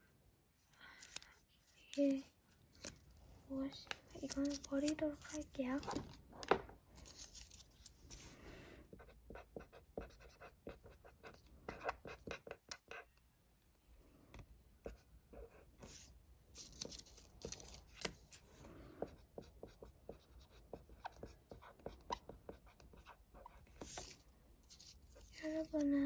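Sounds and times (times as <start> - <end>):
marker pen scratching on paper: 8.9 - 13.2, 14.8 - 25.9.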